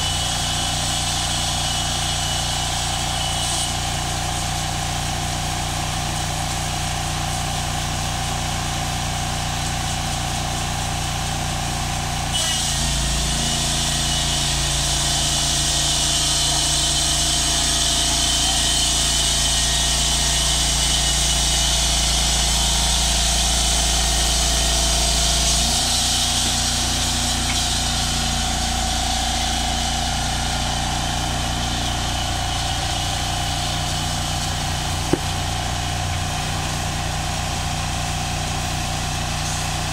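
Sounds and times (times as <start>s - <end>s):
sawmill engine running: 0.0s - 39.9s
band saw blade whirring: 23.8s - 37.0s.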